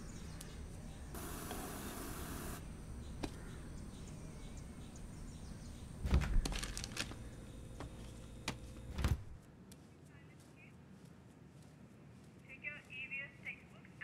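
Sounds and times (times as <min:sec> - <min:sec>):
refrigerator door thud: 0:06.0 - 0:07.1.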